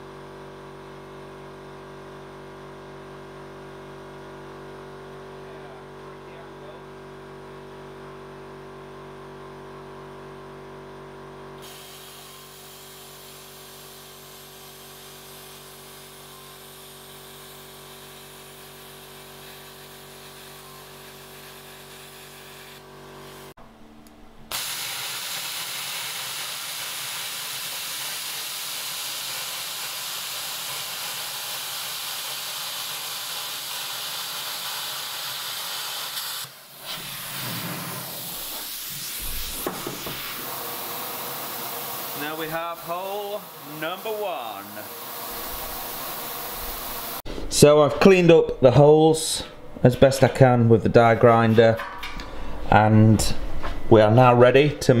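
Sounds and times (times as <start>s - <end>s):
plasma cutter hissing: 11.6s - 23.5s, 24.5s - 47.2s.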